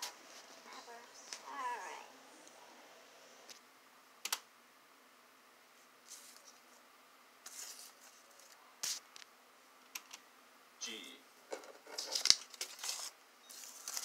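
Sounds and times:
sharp clicks: 0:04.2 - 0:04.5
soft rustles: 0:05.7 - 0:09.0.

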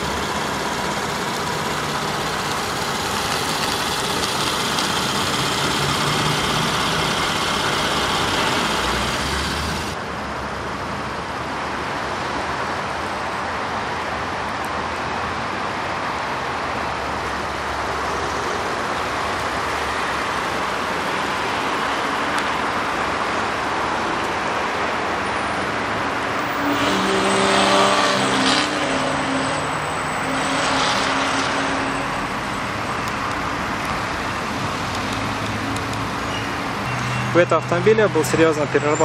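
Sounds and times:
road traffic: 0:00.0 - 0:39.0
vehicle engine passing by: 0:26.4 - 0:32.4.

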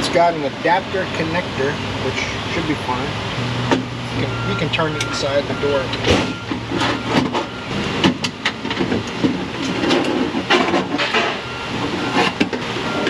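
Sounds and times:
metal clanks and scrapes: 0:06.0 - 0:12.6.

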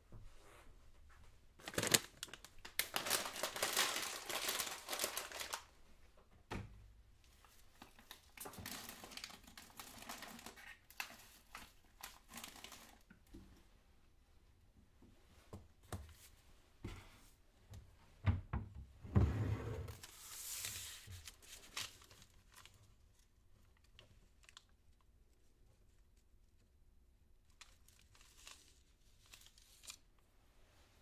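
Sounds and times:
wrapping crinkling and rustling: 0:01.6 - 0:05.7, 0:07.3 - 0:13.1, 0:19.9 - 0:26.8, 0:27.4 - 0:31.0.

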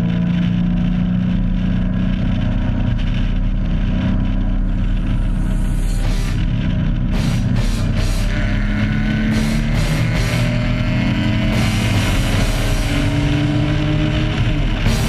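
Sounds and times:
race car engine: 0:00.0 - 0:15.0
hard rock music: 0:04.0 - 0:15.0.

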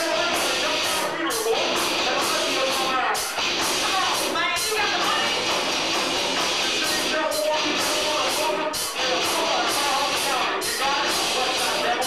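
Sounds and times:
metal band playing live: 0:00.0 - 0:12.0.

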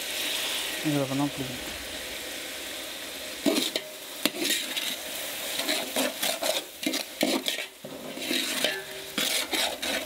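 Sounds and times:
oil sizzling: 0:00.0 - 0:10.0
ladle stirring and scraping pot: 0:03.4 - 0:10.0.

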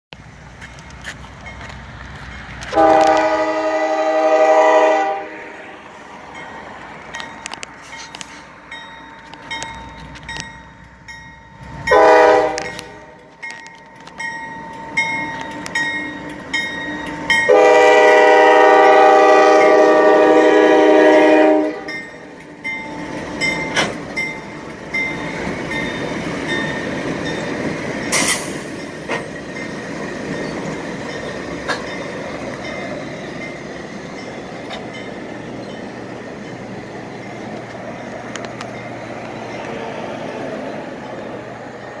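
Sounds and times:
locomotives rumbling past: 0:00.2 - 0:42.0
locomotive air horn blasts: 0:02.7 - 0:05.8, 0:11.9 - 0:13.3, 0:17.4 - 0:22.0
wheels clicking over rail joints: 0:06.3 - 0:17.7, 0:21.0 - 0:42.0.

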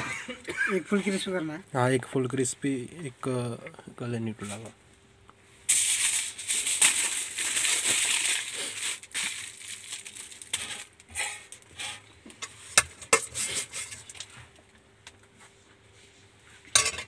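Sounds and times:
aluminium foil crinkling: 0:05.7 - 0:12.0, 0:13.1 - 0:14.4.

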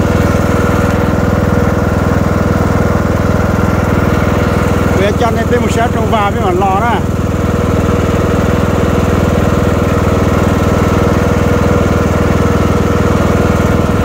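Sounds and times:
lawn mower engine running: 0:00.0 - 0:14.0.

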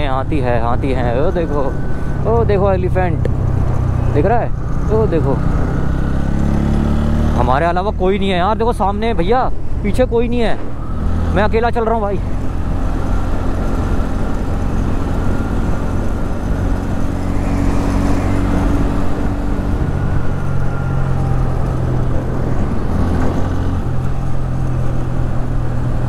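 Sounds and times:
motorcycle engine running: 0:10.7 - 0:26.0
wind rushing past microphone: 0:12.2 - 0:26.0.

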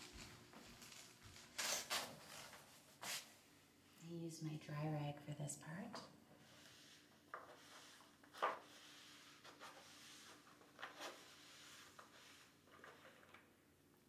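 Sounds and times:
cloth rag rubbing plastic tub: 0:06.5 - 0:13.1.

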